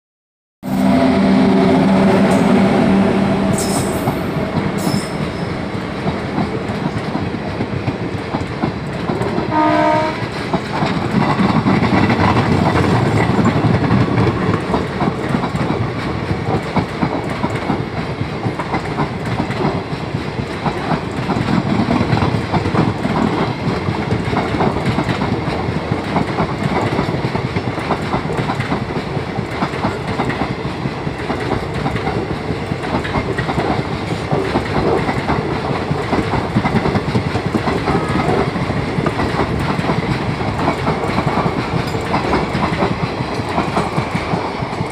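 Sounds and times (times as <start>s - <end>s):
train horn: 0.6s - 5.5s, 9.5s - 10.3s
train coaches rumbling past: 0.6s - 44.9s
wheels clacking over rail joints: 10.2s - 44.9s.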